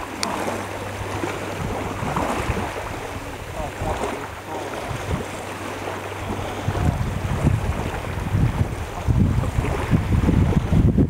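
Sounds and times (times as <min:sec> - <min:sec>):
faint voices: 0:00.0 - 0:08.2
small waves lapping: 0:00.0 - 0:11.0
wind buffeting microphone: 0:00.0 - 0:11.0.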